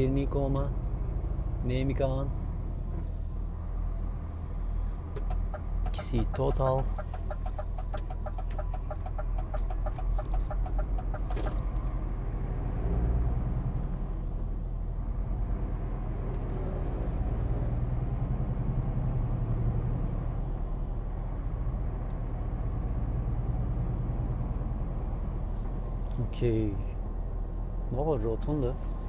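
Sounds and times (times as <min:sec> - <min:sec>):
road noise inside cab: 0:00.0 - 0:29.0
truck diesel engine drone: 0:00.0 - 0:29.0
turn indicator ticking: 0:04.9 - 0:12.0.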